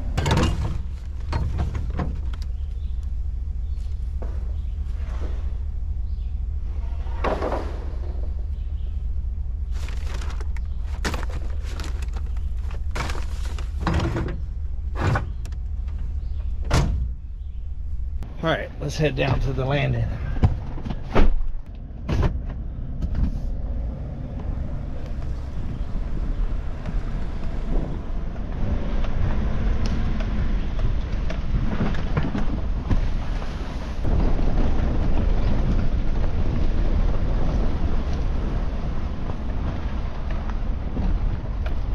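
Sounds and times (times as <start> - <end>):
short knocks and rattles: 0.0 - 2.6, 9.8 - 17.1
truck engine and road rumble: 0.0 - 41.9
wind on microphone: 22.7 - 41.9.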